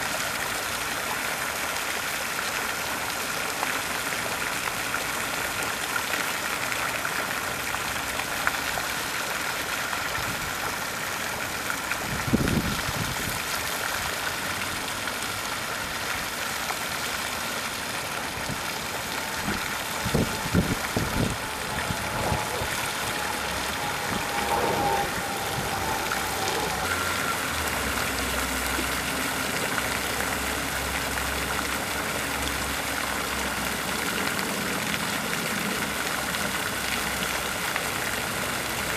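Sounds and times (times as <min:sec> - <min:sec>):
fountain water splashing: 0:00.0 - 0:38.9
low rumble: 0:18.3 - 0:32.1.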